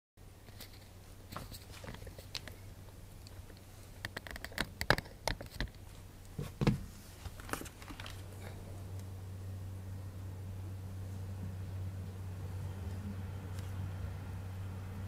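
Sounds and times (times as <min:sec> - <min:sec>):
steady low hum: 0:00.2 - 0:15.0
light clicks and taps: 0:00.5 - 0:02.6.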